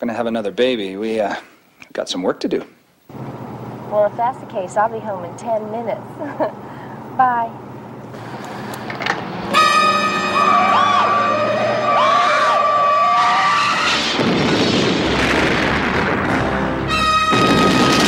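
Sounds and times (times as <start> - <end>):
vehicle horn blaring: 9.4 - 12.7, 16.7 - 18.0
tyres screeching: 9.4 - 14.2
crash and explosion: 13.5 - 18.0.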